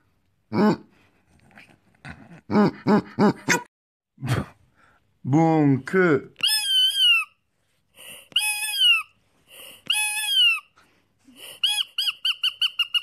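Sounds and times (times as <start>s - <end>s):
squeeze toy squeaks: 6.4s - 13.0s
squeeze toy squealing: 6.4s - 13.0s.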